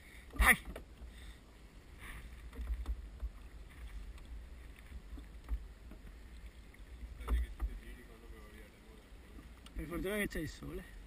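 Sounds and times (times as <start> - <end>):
water splashing against hull: 0.0 - 11.0
light wooden knocks: 2.3 - 8.1.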